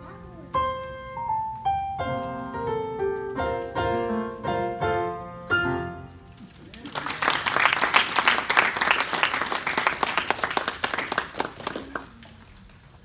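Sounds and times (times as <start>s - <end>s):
audience applauding: 6.6s - 12.6s.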